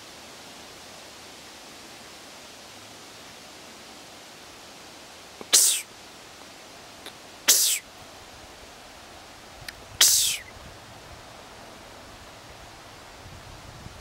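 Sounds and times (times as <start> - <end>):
person imitating deer snorts: 5.4 - 5.9, 7.5 - 7.8, 10.0 - 10.5.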